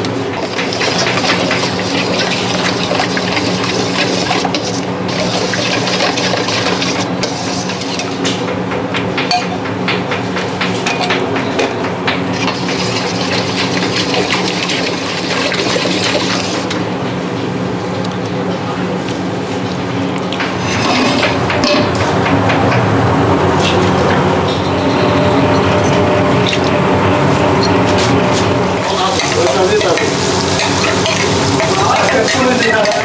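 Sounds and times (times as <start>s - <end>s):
steady hum: 0.0s - 33.0s.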